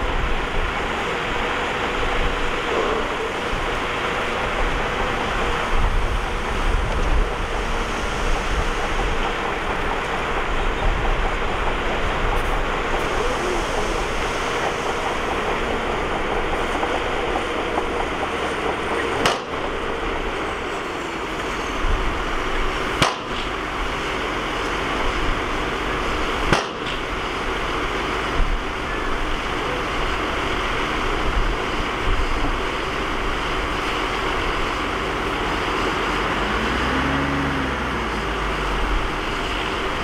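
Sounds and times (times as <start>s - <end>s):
bulldozer diesel engine running: 0.0s - 40.0s.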